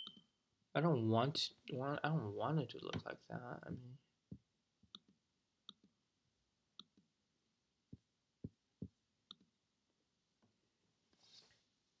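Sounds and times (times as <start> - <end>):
computer clicks and taps: 3.7 - 6.0, 6.8 - 7.1.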